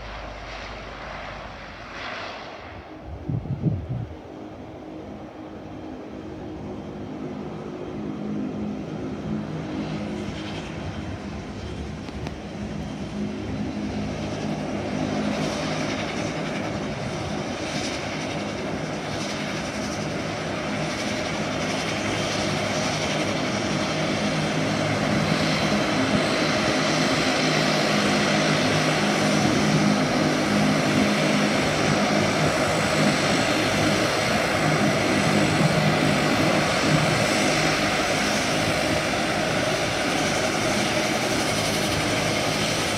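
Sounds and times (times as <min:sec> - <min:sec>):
propeller drone: 0:00.0 - 0:42.9
rushing turbine noise: 0:00.0 - 0:42.9.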